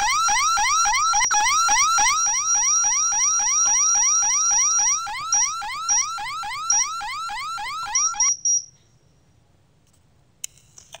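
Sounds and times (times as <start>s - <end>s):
alarm siren whooping: 0.0s - 8.4s.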